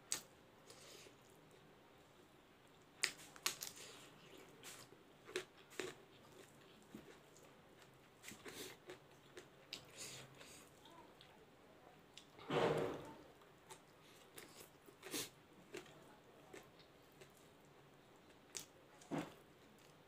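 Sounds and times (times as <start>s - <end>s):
person chewing with wet smacks: 2.7s - 11.4s, 13.7s - 18.7s.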